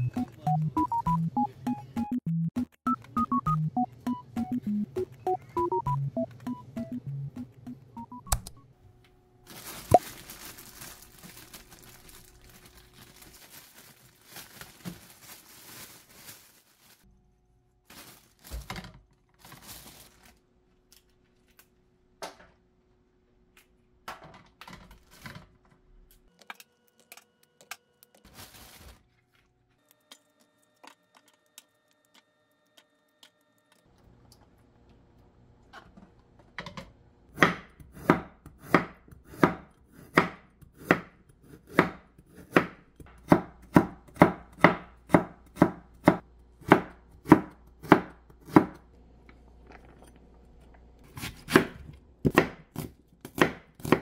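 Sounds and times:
knife chopping on wooden board: 0:37.4 - 0:48.8, 0:51.1 - 0:54.0.

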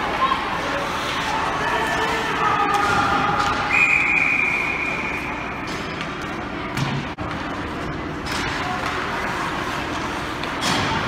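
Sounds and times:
referee whistle: 0:03.7 - 0:05.4.

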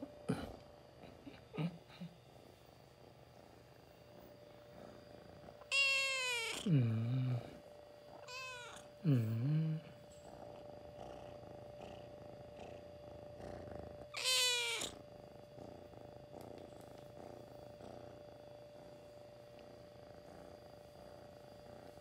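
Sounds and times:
kitten purring: 0:03.2 - 0:22.0
kitten meowing: 0:05.7 - 0:06.7, 0:08.2 - 0:08.8, 0:14.2 - 0:15.0.

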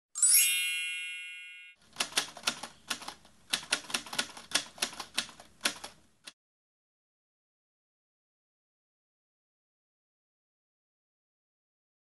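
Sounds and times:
bright chime ringing: 0:00.2 - 0:01.8
typewriter keys clacking: 0:01.8 - 0:06.0.

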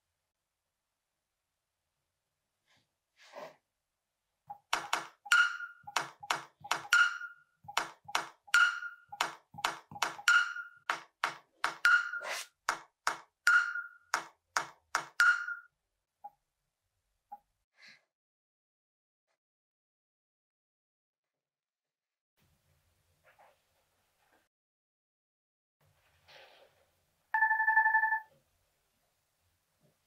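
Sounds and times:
ringing ping: 0:06.8 - 0:07.5, 0:08.6 - 0:09.1, 0:10.2 - 0:10.9, 0:13.5 - 0:14.1, 0:15.2 - 0:15.7.

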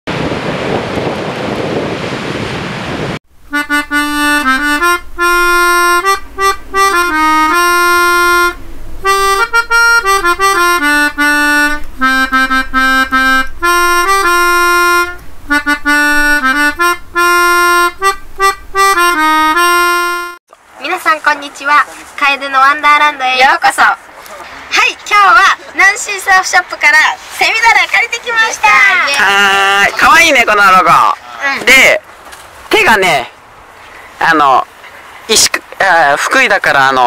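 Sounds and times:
wind and surf noise: 0:00.1 - 0:37.0
accordion-like instrumental music: 0:03.4 - 0:20.4.

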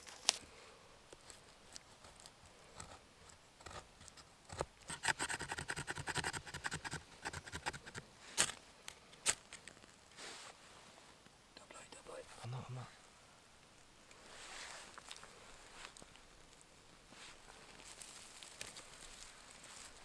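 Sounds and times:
knife scraping wood: 0:03.6 - 0:08.6.

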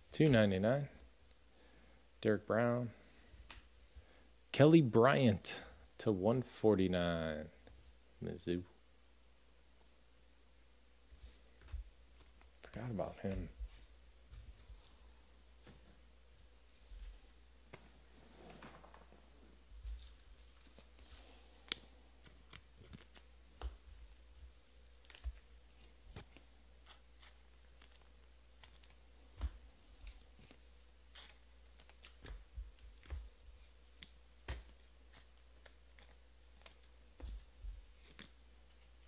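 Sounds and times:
low steady hum: 0:00.0 - 0:39.0
trading cards flipped by hand: 0:21.6 - 0:23.8, 0:25.0 - 0:33.3, 0:38.0 - 0:39.0.

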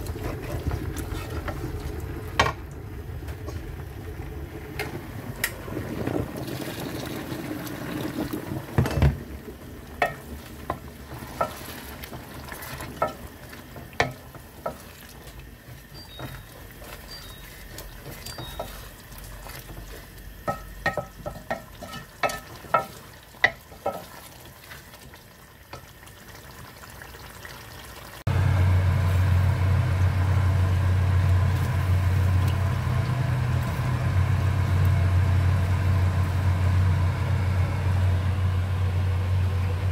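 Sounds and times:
food sizzling: 0:00.0 - 0:37.2
wooden spoon knocking on pot: 0:10.0 - 0:11.6, 0:13.8 - 0:14.8, 0:20.4 - 0:24.1
loud low hum: 0:28.3 - 0:39.9.

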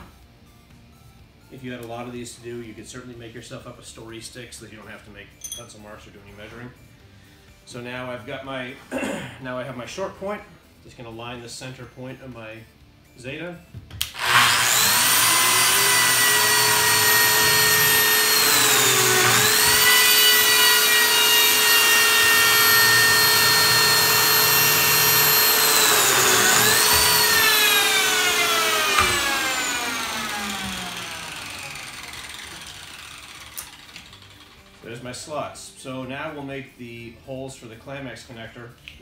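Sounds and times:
slot cutter whining: 0:14.0 - 0:34.6.

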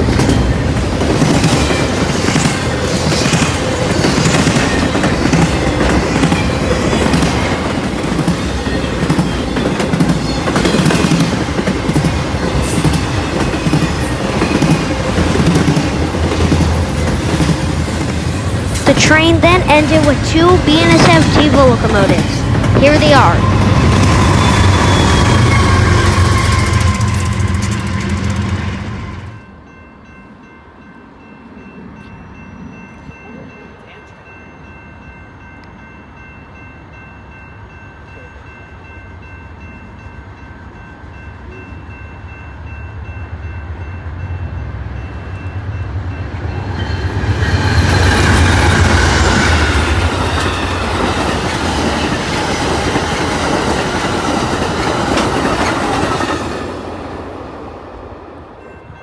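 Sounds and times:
freight train wheels rumbling: 0:00.0 - 0:29.8, 0:37.7 - 0:59.0
clickety-clack over rail joints: 0:20.9 - 0:22.8, 0:47.7 - 0:56.6.

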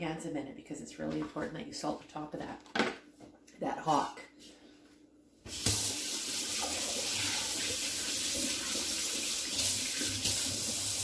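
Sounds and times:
water running into sink: 0:05.5 - 0:11.0.

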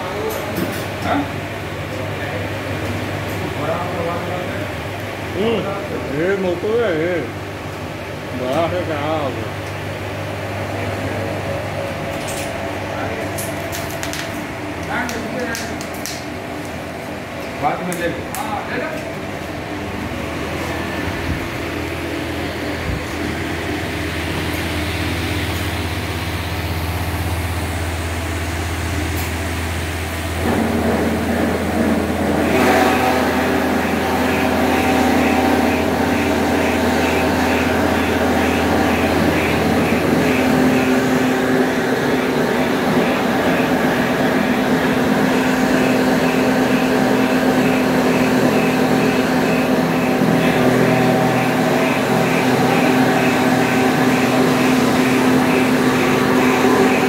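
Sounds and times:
higher steady hum: 0:00.0 - 0:57.0
motors and gearboxes humming: 0:18.8 - 0:57.0.

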